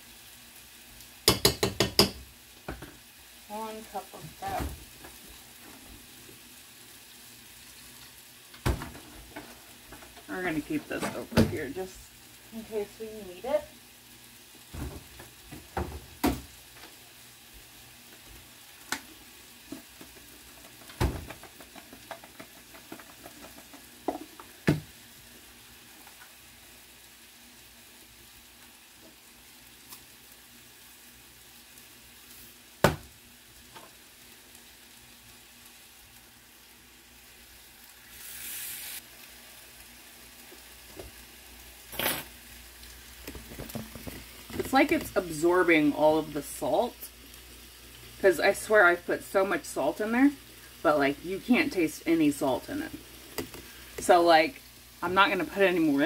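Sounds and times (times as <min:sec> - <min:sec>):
chicken sizzling in a skillet: 0:00.0 - 0:56.0
potato masher knocking against pot: 0:01.2 - 0:02.2.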